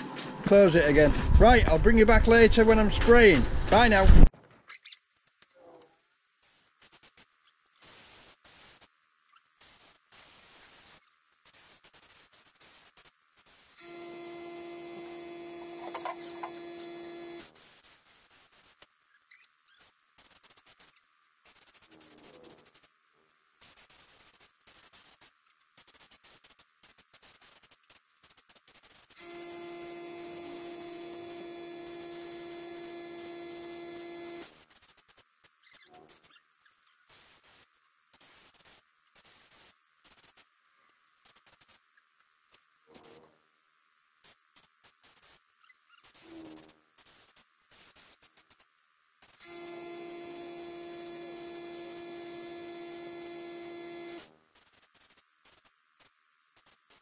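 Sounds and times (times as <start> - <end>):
paint spray gun hissing: 6.4 - 8.9, 9.6 - 18.9, 23.6 - 35.3, 37.0 - 40.5
air compressor humming: 13.8 - 17.6, 29.2 - 34.6, 49.4 - 54.3.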